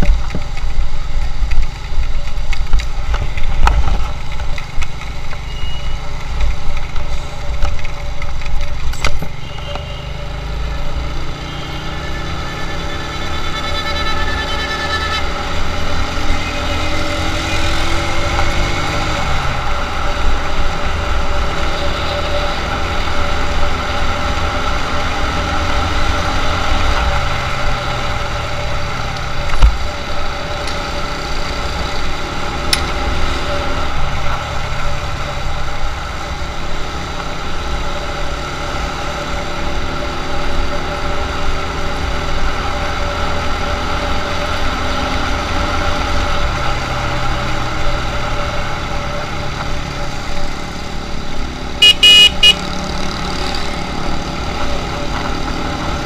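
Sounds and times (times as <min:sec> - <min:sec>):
wind and road rumble: 0:00.0 - 0:56.0
small motorcycle engine: 0:09.0 - 0:35.3, 0:47.3 - 0:56.0.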